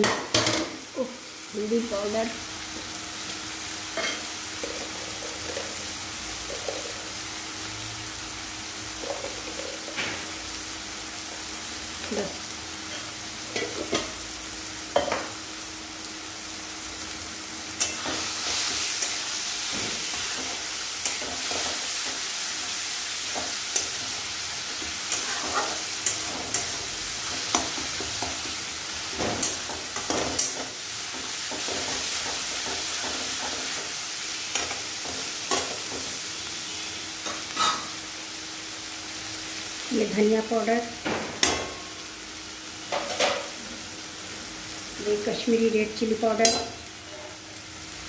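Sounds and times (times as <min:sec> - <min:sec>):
masala sizzling in oil: 0:00.0 - 0:48.0
spatula scraping and knocking pan: 0:24.7 - 0:36.1.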